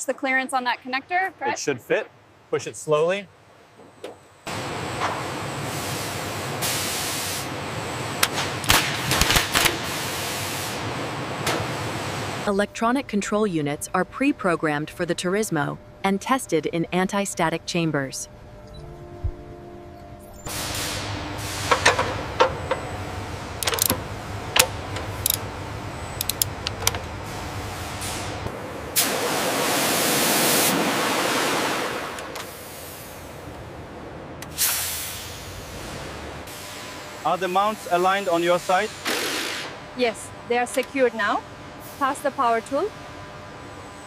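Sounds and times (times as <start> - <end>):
low background hum: 7.4 - 29.6, 39.6 - 44.0
sharp clicks and knocks: 23.6 - 25.4, 26.2 - 27.1
light mechanical clicks: 26.2 - 27.0.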